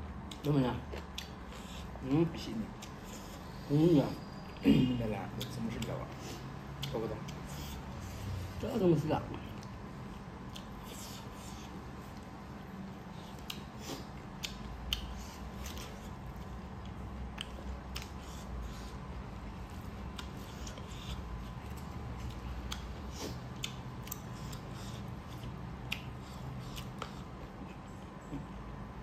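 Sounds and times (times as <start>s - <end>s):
low steady hum: 0.0s - 29.0s
people chewing: 9.4s - 28.6s.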